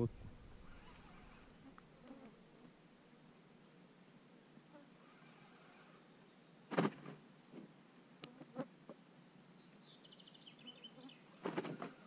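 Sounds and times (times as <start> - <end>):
faint insect buzz: 0.3 - 7.2, 8.2 - 9.4.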